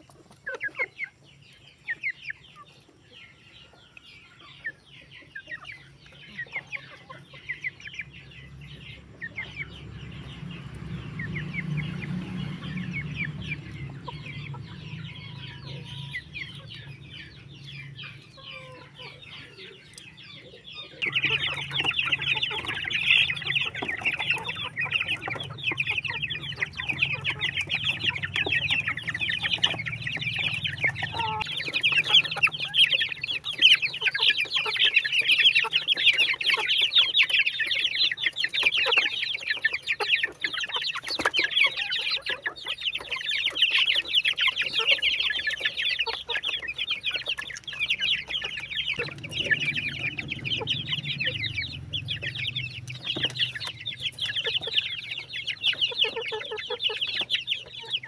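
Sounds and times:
chickens clucking and peeping: 0.0s - 58.0s.

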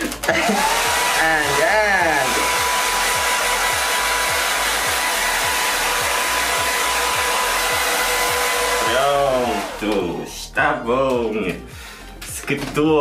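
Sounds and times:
hair dryer blowing: 0.0s - 10.3s.

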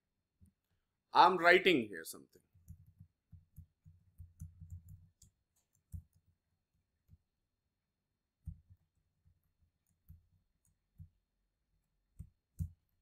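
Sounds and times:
faint keyboard typing: 2.4s - 7.4s, 8.4s - 13.0s.

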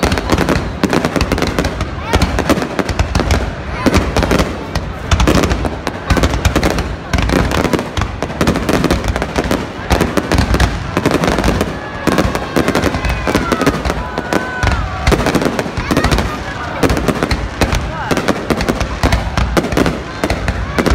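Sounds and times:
fireworks bangs and crackle: 0.0s - 20.9s.

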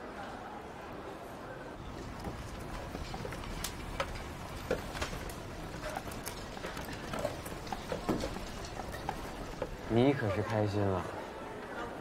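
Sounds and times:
clacks and knocks: 1.9s - 10.6s.

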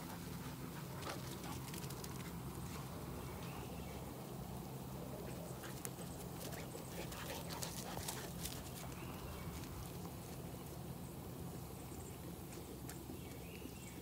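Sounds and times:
steady low hum: 0.0s - 14.0s
puppy paws pattering on grass: 5.2s - 14.0s.

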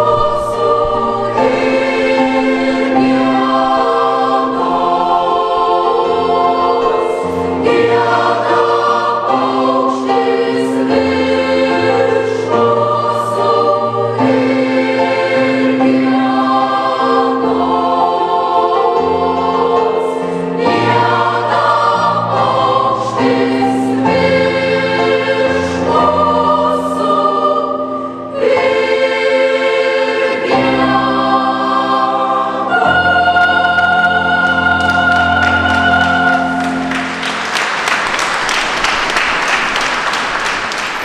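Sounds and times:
mixed choir singing: 0.0s - 41.0s
applause: 35.5s - 41.0s.

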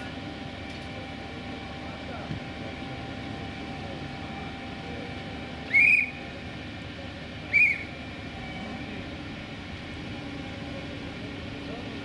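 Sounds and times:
high whistle blasts: 5.6s - 6.2s, 7.4s - 8.0s.

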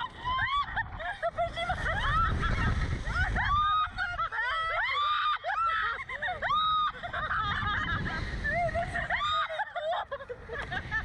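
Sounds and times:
wind rumbling on microphone: 0.0s - 11.0s
women screaming and laughing: 0.0s - 11.0s.

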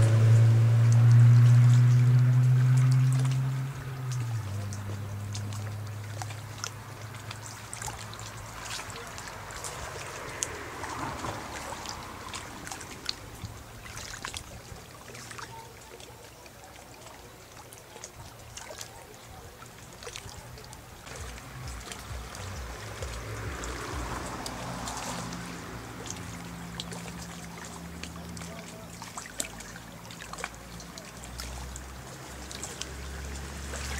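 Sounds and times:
rushing noise: 21.2s - 26.7s.

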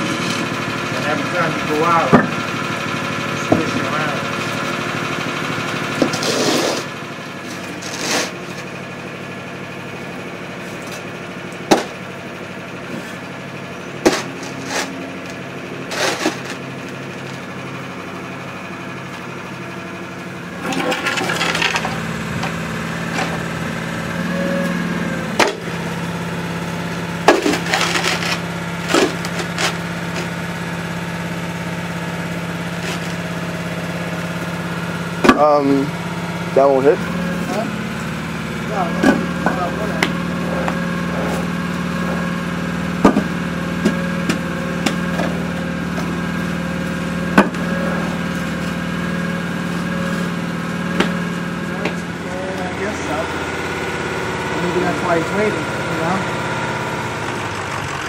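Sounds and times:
truck engine idling: 0.0s - 58.0s
concrete blocks clunking: 20.6s - 23.4s, 27.2s - 29.8s.

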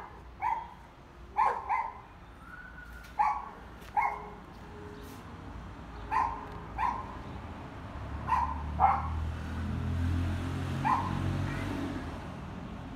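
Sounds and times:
dog barking: 0.0s - 0.8s, 1.4s - 2.1s, 3.2s - 4.4s, 6.1s - 7.2s, 8.2s - 9.2s, 10.8s - 11.7s.

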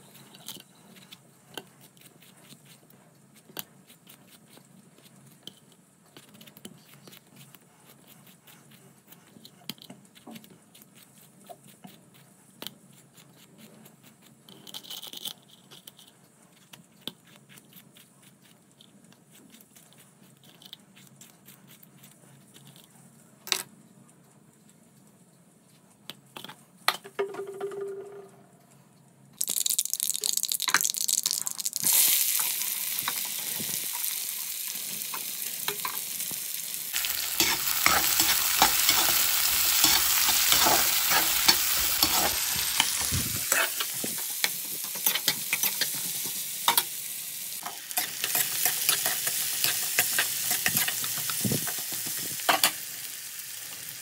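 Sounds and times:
food frying in hot oil: 29.4s - 54.0s.

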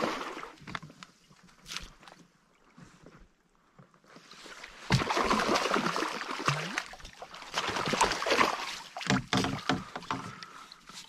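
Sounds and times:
fish splashing in water: 4.9s - 10.6s.

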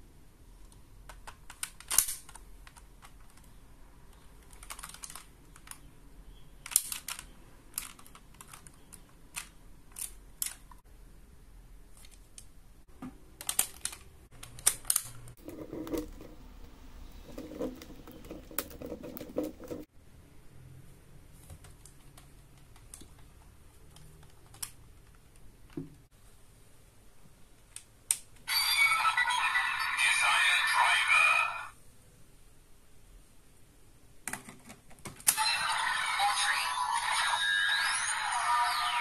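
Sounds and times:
hard plastic toy clicking: 0.7s - 3.5s, 4.1s - 5.9s, 6.6s - 10.8s, 13.4s - 16.1s, 21.8s - 25.5s
plastic rubbing and scraping: 13.4s - 19.9s.

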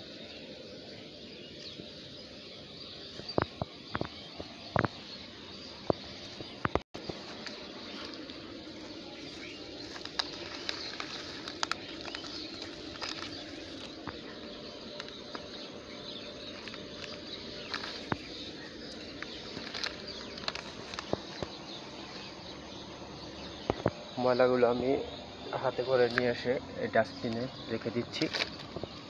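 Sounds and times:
outdoor background hiss: 0.0s - 29.0s
plastic wrappers crinkling: 7.1s - 22.3s.

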